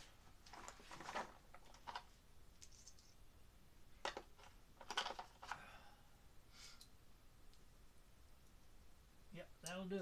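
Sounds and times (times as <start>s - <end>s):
small objects clicking and rustling: 0.4s - 3.2s, 4.0s - 5.6s.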